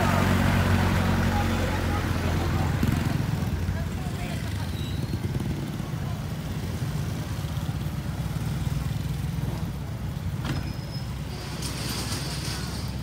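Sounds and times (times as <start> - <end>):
motorcycle engine rumble: 0.0 - 13.0.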